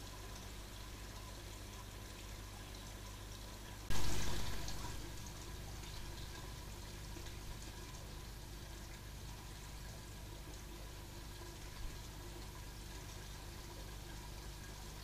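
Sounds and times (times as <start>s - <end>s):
microphone hiss: 3.9s - 8.2s.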